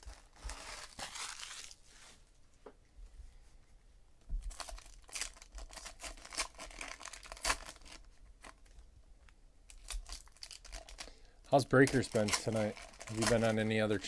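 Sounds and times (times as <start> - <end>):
foil wrapper crinkling and tearing: 0.0 - 1.9, 4.5 - 8.7, 9.7 - 14.0.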